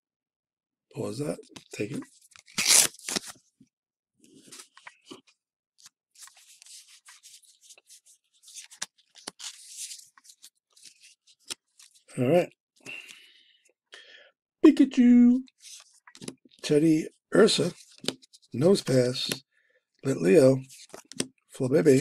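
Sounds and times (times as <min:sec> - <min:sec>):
trading cards being shuffled: 0:01.5 - 0:03.4, 0:05.8 - 0:12.0, 0:20.7 - 0:21.3.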